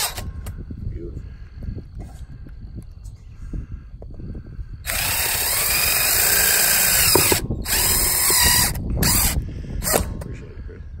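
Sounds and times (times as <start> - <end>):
drill driving screws: 4.9 - 10.1.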